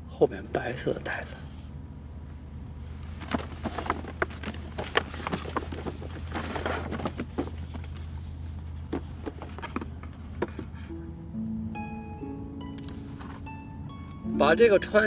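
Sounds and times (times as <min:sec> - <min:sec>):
car cabin hum: 0:02.2 - 0:11.3
shopping bag rustling: 0:03.1 - 0:09.7
cardboard box being opened: 0:03.1 - 0:10.0.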